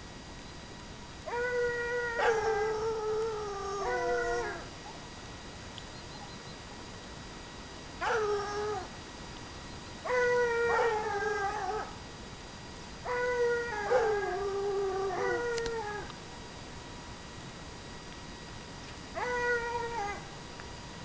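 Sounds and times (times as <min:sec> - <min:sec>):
hounds baying: 0:01.3 - 0:02.8, 0:08.0 - 0:08.9, 0:13.1 - 0:14.4.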